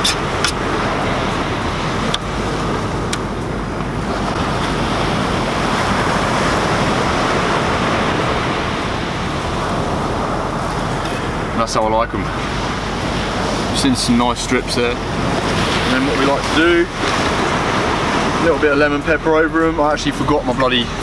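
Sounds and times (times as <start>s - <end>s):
ocean surf washing onto beach: 0.0s - 21.0s
wind: 0.0s - 21.0s.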